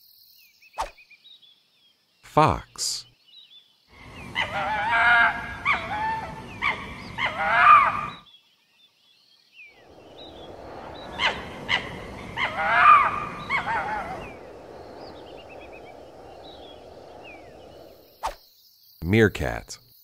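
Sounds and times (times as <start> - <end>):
fox yelping and whining: 4.3 - 8.1, 11.1 - 14.4.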